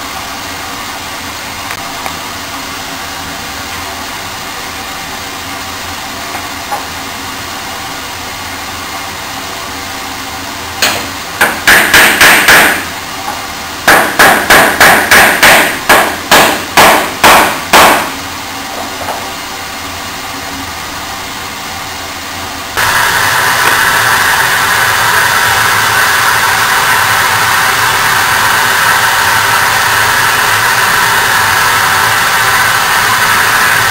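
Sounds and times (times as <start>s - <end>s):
loud machine noise: 0.0s - 33.9s
wooden mallet striking wood: 13.9s - 18.1s.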